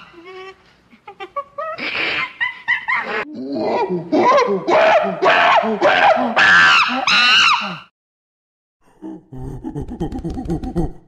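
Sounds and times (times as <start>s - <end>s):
chimpanzee screams and hoots: 1.1s - 7.9s.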